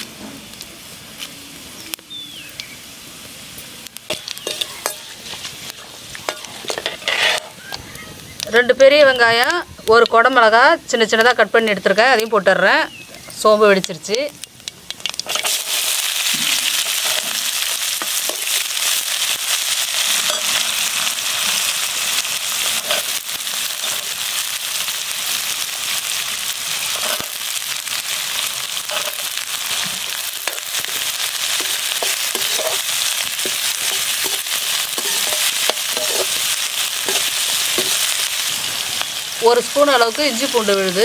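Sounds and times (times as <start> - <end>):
onions sizzling in hot oil: 0.0 - 41.0
metal spatula scraping a pan: 4.1 - 7.7, 15.2 - 16.0, 20.1 - 20.8, 22.6 - 24.2, 26.9 - 27.4, 28.9 - 29.4, 30.4 - 38.3.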